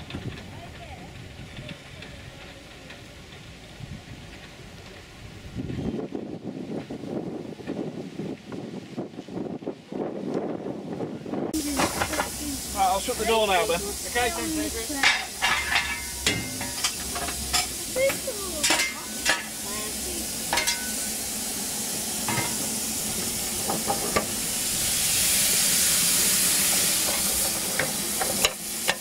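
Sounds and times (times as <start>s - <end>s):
steam hissing: 11.4s - 29.0s
sharp metal knocks and clanks: 15.0s - 19.5s, 20.5s - 21.0s.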